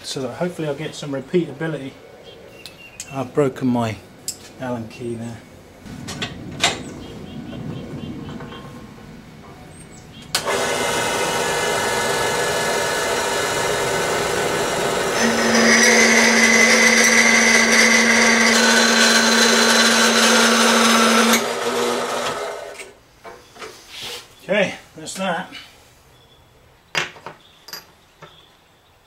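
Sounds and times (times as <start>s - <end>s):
blade whine cutting metal: 10.4s - 22.7s
metal-cutting bandsaw running: 10.4s - 22.9s.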